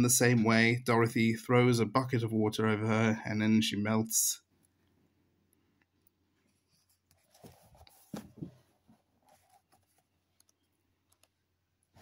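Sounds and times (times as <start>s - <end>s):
book pages turning: 6.4s - 10.6s.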